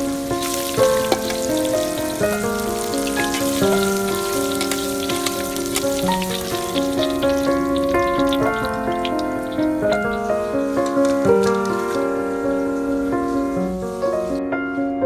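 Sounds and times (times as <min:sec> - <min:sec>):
food deep-frying in oil: 0:00.0 - 0:10.3
gentle acoustic music: 0:00.0 - 0:15.0.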